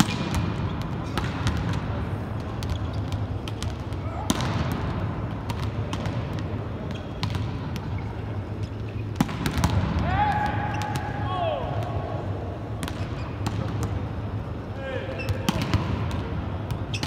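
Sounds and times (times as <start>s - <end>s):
volleyballs smacking in a hall: 0.0s - 17.0s.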